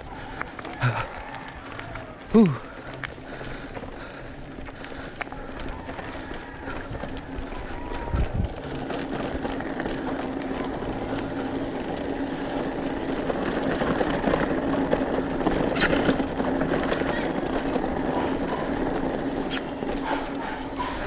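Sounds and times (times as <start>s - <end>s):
bike tyres on dirt trail: 0.0s - 21.0s.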